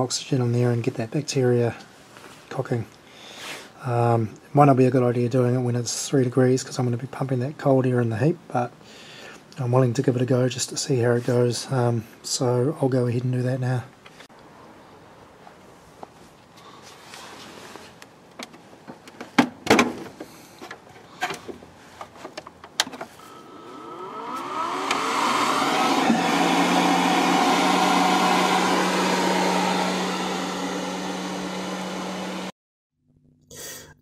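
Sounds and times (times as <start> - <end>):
electric air pump running: 23.2 - 32.5.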